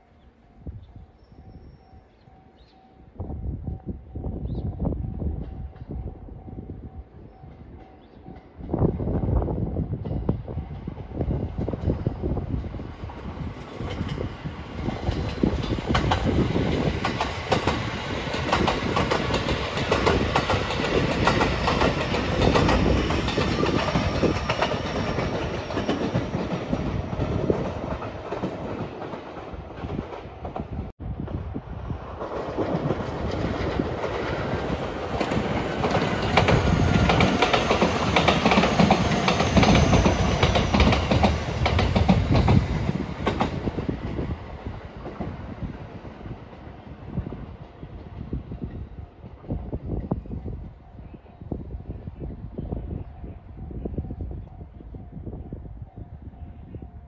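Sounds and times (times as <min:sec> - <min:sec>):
electric train passing: 0:00.0 - 0:57.0.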